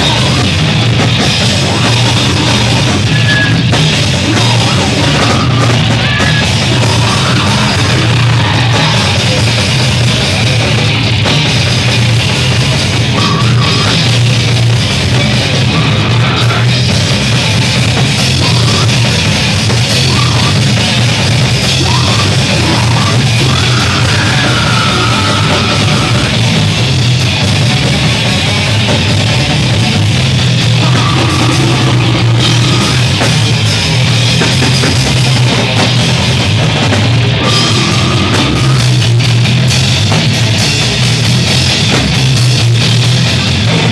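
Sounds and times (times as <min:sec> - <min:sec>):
heavy metal band playing live: 0:00.0 - 0:43.9.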